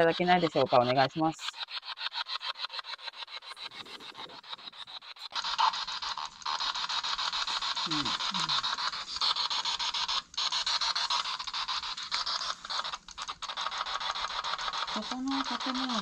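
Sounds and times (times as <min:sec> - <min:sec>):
radio static with fast clicks: 0:10.3 - 0:16.0.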